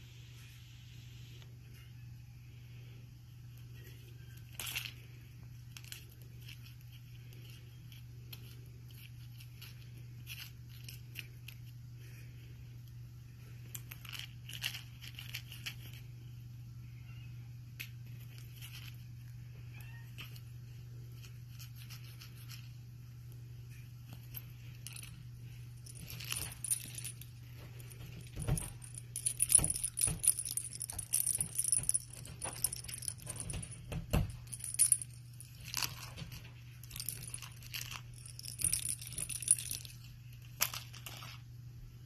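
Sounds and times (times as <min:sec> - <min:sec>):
small bell jingling: 0:24.3 - 0:41.2.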